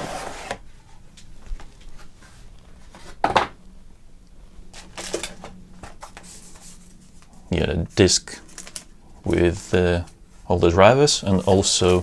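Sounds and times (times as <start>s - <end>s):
cardboard sliding scrape: 0.0s - 0.6s.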